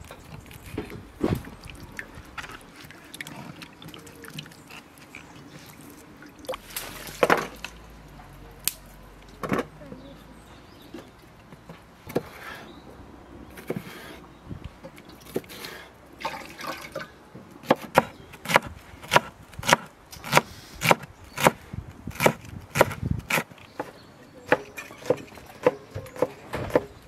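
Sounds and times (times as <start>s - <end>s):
water poured splashing: 1.2s - 7.8s, 16.2s - 17.2s.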